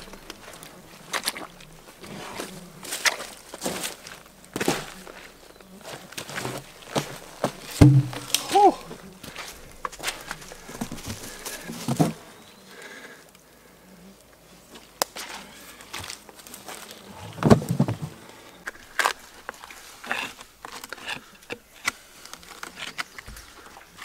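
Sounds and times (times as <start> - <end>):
heavy log thump: 7.8 - 8.5.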